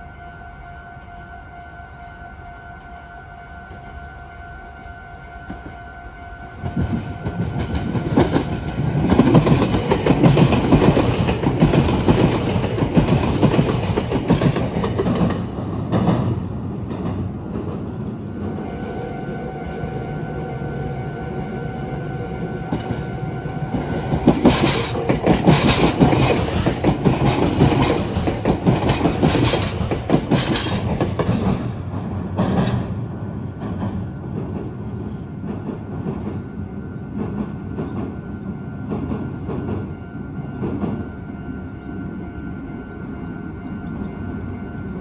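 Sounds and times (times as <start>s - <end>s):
train wheels clattering over rails: 6.6s - 18.6s, 23.7s - 34.8s.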